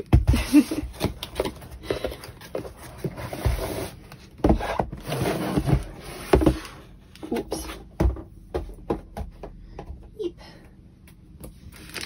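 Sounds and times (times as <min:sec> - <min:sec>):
cardboard box rustling and scraping: 0:01.0 - 0:07.7.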